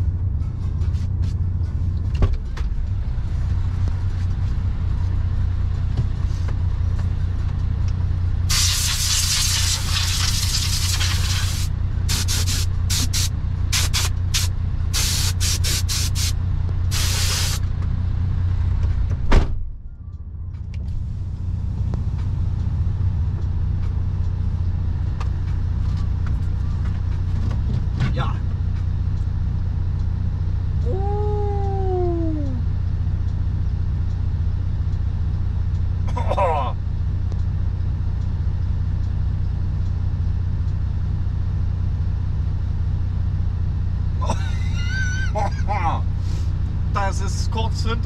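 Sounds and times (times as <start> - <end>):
diesel engine idling: 0.0 - 19.1, 19.7 - 48.0
compressed air hissing: 8.5 - 17.6
thump: 19.2 - 19.6.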